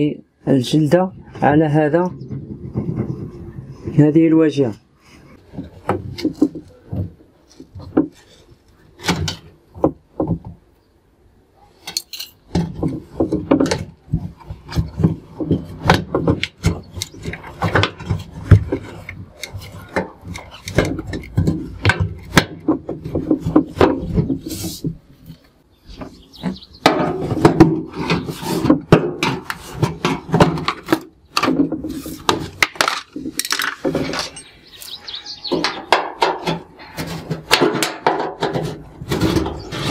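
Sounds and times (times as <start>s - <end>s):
rubber gasket rubbing and scraping: 2.2s - 4.0s, 12.4s - 39.9s
knocks and clicks: 12.5s - 39.9s.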